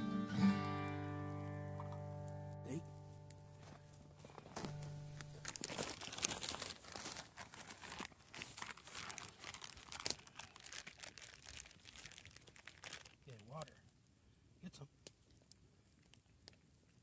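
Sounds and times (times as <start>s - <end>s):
plastic bag crinkling: 3.5s - 13.6s.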